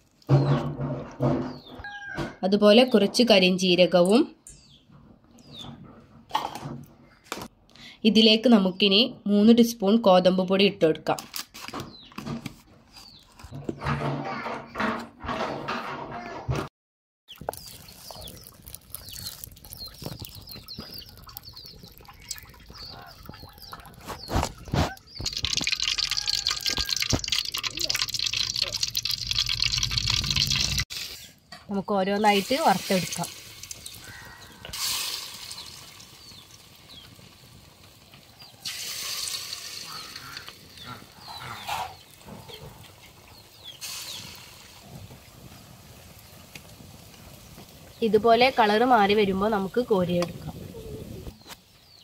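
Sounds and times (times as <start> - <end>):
small birds chirping: 2.8 - 6.0, 17.3 - 30.5, 31.2 - 38.7, 39.8 - 52.0
oil bubbling: 17.3 - 31.5, 32.2 - 51.4
wood fire crackling: 17.5 - 31.4, 32.2 - 51.4
batter sizzling in hot oil: 24.2 - 31.4, 32.2 - 41.4, 43.5 - 50.1
hens clucking: 39.8 - 43.3.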